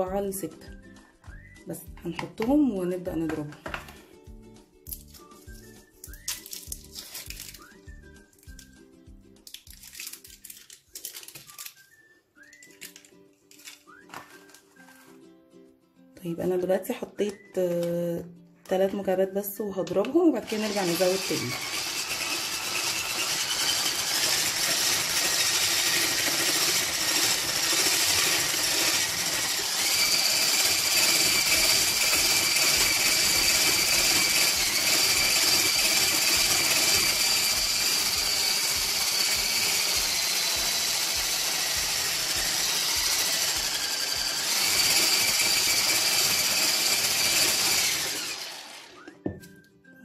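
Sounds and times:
electric whisk motor whine: 20.4 - 49.1.

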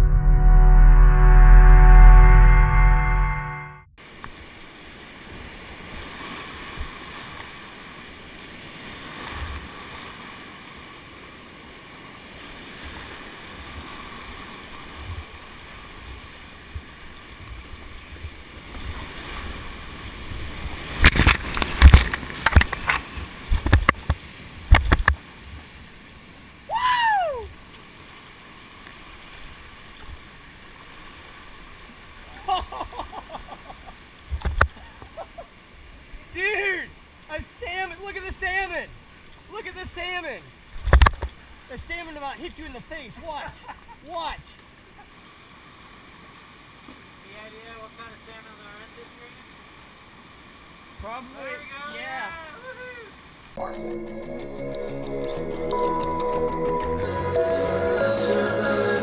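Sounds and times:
sharp knocks and splashes: 20.5 - 25.2, 40.8 - 41.4.

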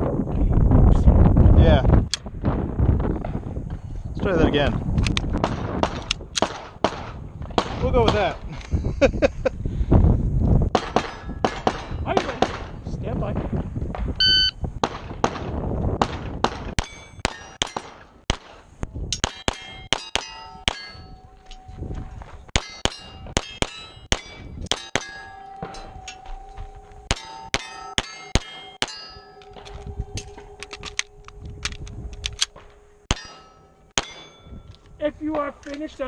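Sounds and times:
pistol shots: 5.4 - 8.2, 10.7 - 12.7, 14.8 - 18.6, 19.2 - 21.1, 22.5 - 26.1, 27.1 - 29.7
steel plates clanging and ringing: 16.8 - 18.0, 19.2 - 21.8, 22.5 - 34.9.

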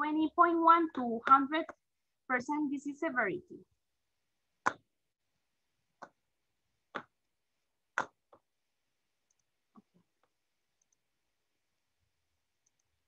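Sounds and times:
faint clicks and ticks: 9.2 - 11.1, 12.5 - 13.0.

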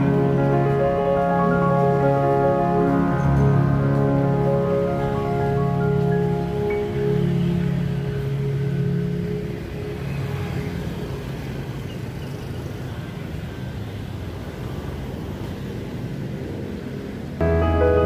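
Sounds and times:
background music: 0.0 - 11.2, 17.4 - 18.0
cars and motorbikes passing: 0.0 - 18.0.

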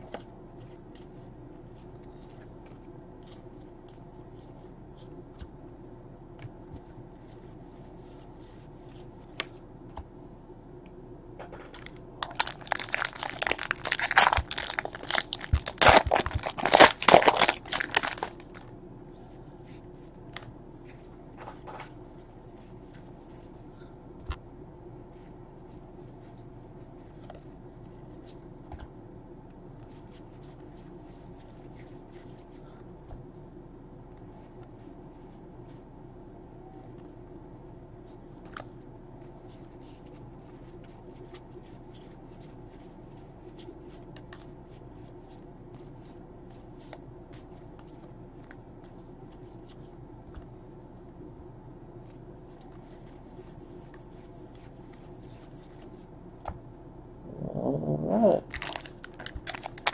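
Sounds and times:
foil wrapper tearing and crinkling: 12.2 - 18.6, 58.5 - 59.9.

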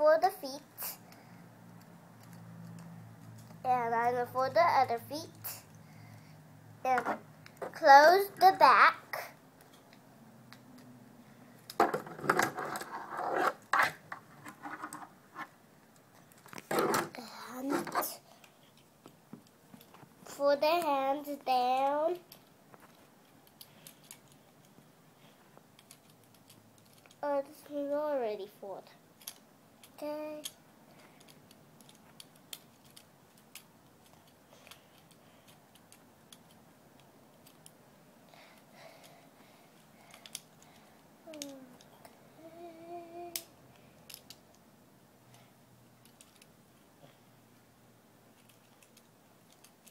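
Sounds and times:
plastic toy parts scraping: 11.8 - 15.5, 16.5 - 18.2
plastic toy parts clicking: 23.2 - 24.8, 25.8 - 27.2, 29.2 - 30.6, 31.2 - 37.8, 40.1 - 40.7, 41.3 - 41.9, 43.3 - 44.5, 46.0 - 46.5, 48.4 - 49.9.

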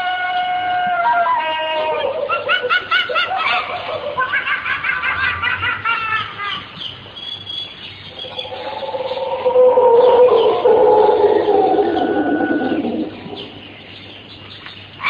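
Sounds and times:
high-pitched laughter: 1.8 - 6.7.

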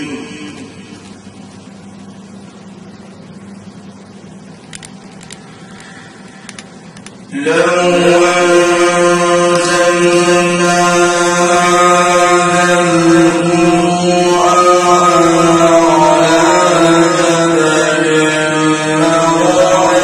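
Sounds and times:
man reciting melodically: 0.0 - 1.0, 7.3 - 20.0
low hum: 0.0 - 20.0
faint clicks: 4.7 - 7.2.

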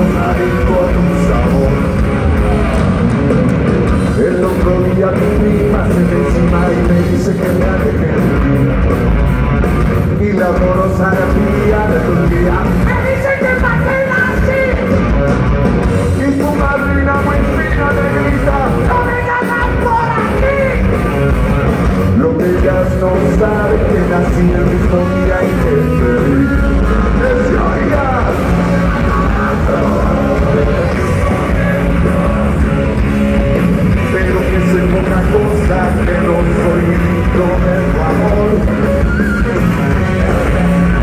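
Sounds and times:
live rock band playing: 0.0 - 41.0.

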